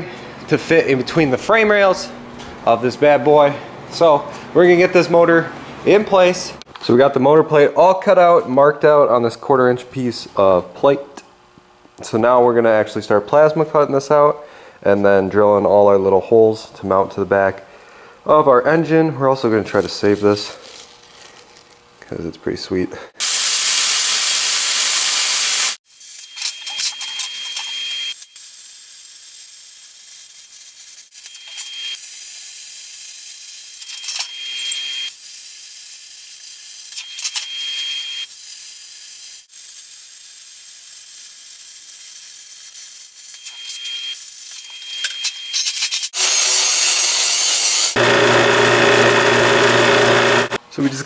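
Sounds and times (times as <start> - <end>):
plasma cutter hissing: 23.2 - 26.2, 38.3 - 44.6, 45.6 - 48.0
drill press motor humming: 47.9 - 50.6.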